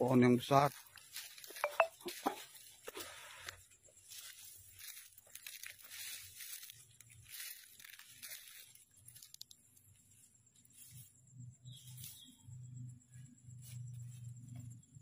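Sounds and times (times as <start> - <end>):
dry fronds crunching underfoot: 0.2 - 11.1.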